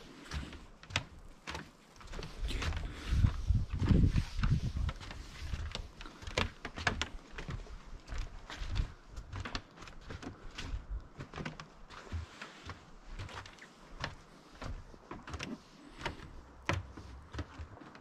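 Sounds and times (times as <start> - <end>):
footsteps crunching in snow: 1.5 - 9.3.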